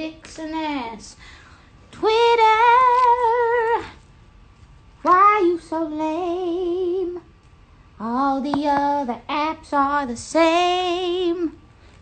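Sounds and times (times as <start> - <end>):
woman singing with vibrato: 1.9 - 4.0, 5.0 - 7.3, 8.0 - 11.6.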